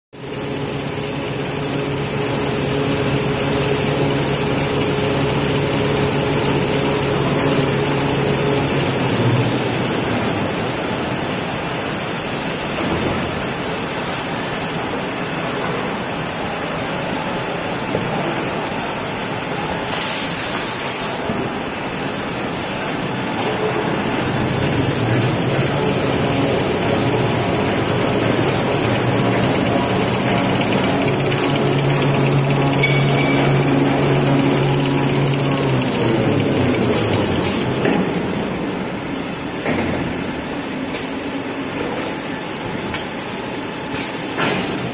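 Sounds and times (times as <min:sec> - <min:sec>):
high-pitched gliding whine: 0:00.2 - 0:12.6, 0:24.1 - 0:38.6
machine motors and rollers humming: 0:00.2 - 0:44.9.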